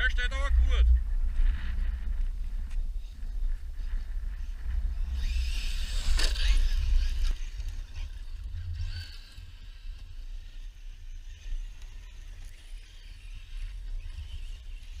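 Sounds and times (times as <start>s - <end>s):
wind rumble on microphone: 0.0s - 15.0s
rc truck motor whine: 3.9s - 15.0s.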